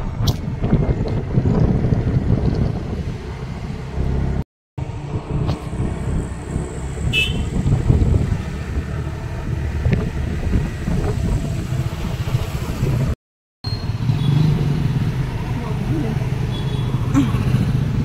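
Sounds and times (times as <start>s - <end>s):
wind on microphone: 0.0s - 4.4s, 5.4s - 13.2s
vehicle engine rumble: 0.0s - 18.0s.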